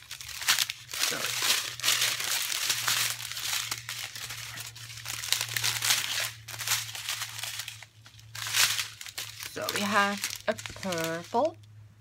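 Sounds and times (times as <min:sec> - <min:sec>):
plastic packaging crinkling: 0:00.0 - 0:11.8.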